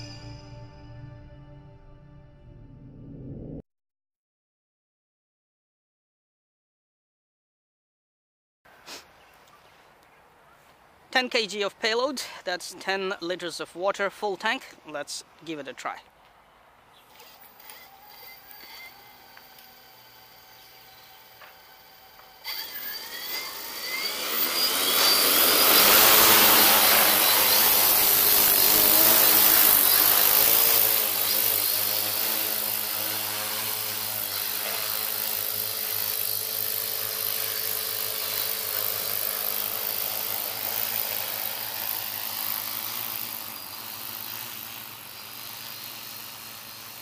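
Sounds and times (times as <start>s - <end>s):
drone propellers whirring: 17.1s - 47.0s.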